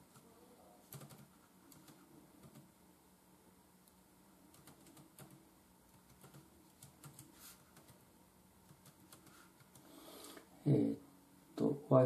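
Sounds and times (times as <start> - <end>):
laptop keyboard typing: 0.0 - 2.8, 4.5 - 8.0, 8.6 - 9.9.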